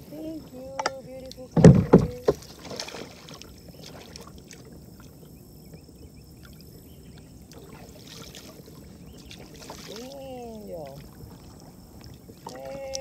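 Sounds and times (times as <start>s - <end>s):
water lapping against kayak hull: 0.0s - 13.0s
small knocks: 0.7s - 2.8s.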